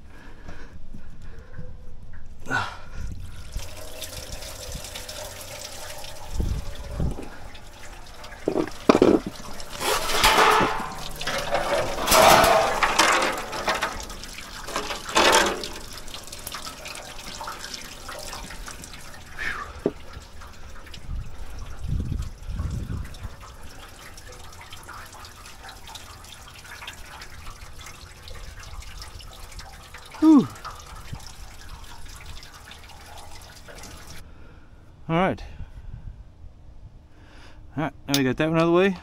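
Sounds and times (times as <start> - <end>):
coolant pouring into pan: 3.2 - 34.2.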